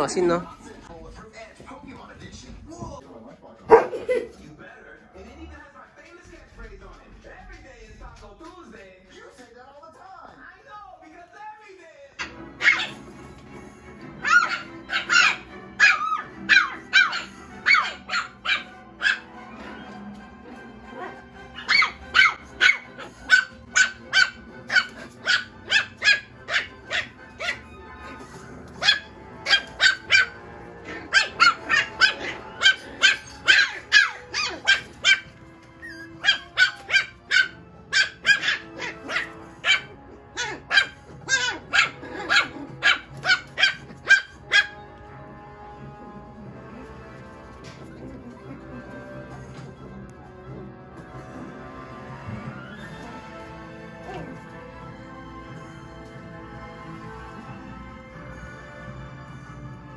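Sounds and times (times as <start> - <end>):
puppies yipping: 12.2 - 13.1, 14.2 - 20.1, 20.9 - 44.9.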